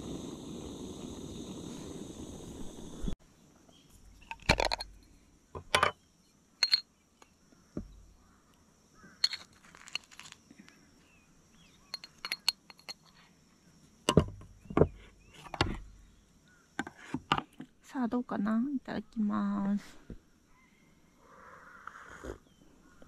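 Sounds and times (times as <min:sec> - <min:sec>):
gas burner hissing: 0:00.0 - 0:03.2
metal spoon clinking on glass jar: 0:06.6 - 0:06.9, 0:09.2 - 0:10.3, 0:11.9 - 0:13.2.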